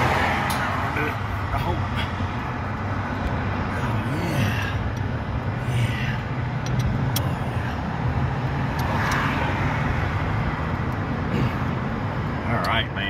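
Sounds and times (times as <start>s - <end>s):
road traffic rumble: 0.0s - 13.0s
light clicks: 6.6s - 7.3s.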